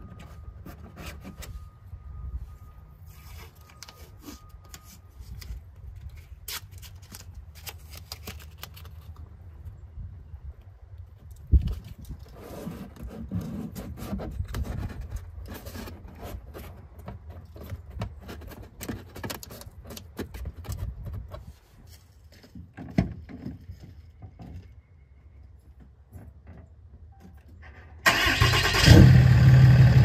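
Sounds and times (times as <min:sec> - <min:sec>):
hand handling rustling and scraping: 0:00.0 - 0:09.8, 0:11.2 - 0:24.9.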